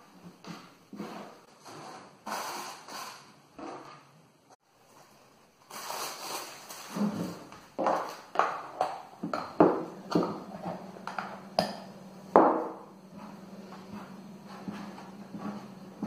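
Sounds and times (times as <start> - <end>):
steady low hum: 9.2 - 16.0.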